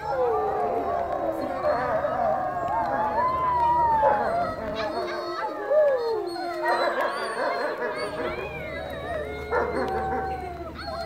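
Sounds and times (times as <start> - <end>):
wolves howling: 0.0 - 11.0.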